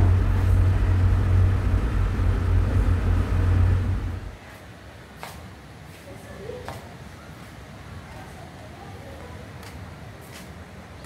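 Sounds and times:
car cabin road rumble: 0.0s - 4.4s.

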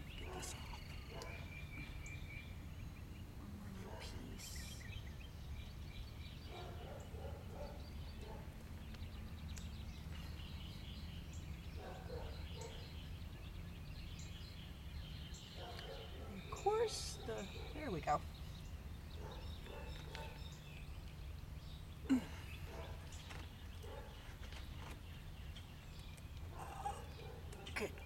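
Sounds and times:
small birds chirping: 0.0s - 28.0s.

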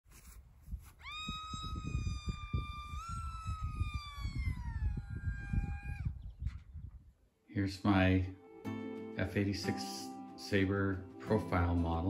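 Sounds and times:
wind rumble on microphone: 0.3s - 7.3s.

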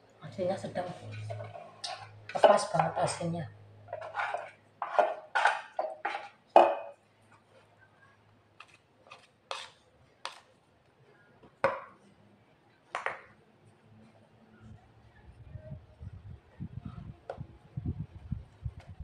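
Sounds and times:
metal spoon scraping steel bowl: 0.8s - 3.2s, 3.9s - 6.3s, 9.1s - 9.8s.

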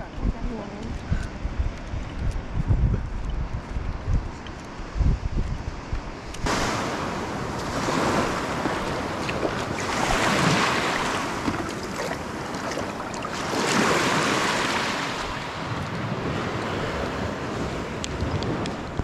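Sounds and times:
wind on microphone: 0.0s - 19.0s
waves washing onto beach: 5.7s - 19.0s.

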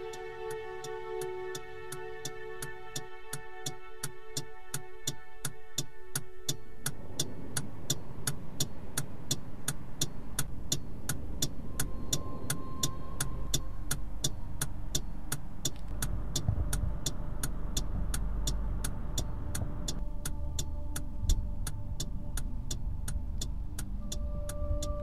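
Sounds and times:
clock-like ticking: 0.0s - 25.0s
car engine idling: 6.9s - 25.0s.

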